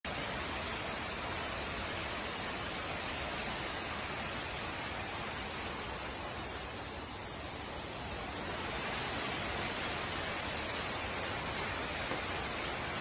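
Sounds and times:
floodwater rushing down stairs: 0.1 - 13.0.

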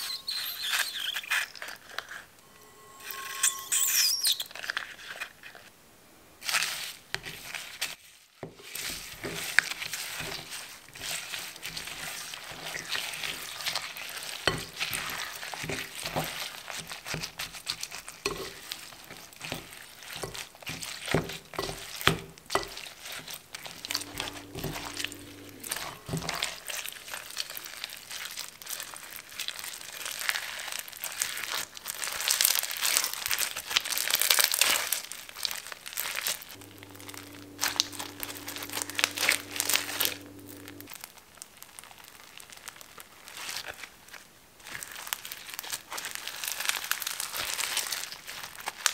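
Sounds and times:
foam slime crackling and popping: 6.4 - 25.0, 25.6 - 48.9
plastic spatula stirring in glass bowl: 8.6 - 27.5, 36.6 - 40.9.

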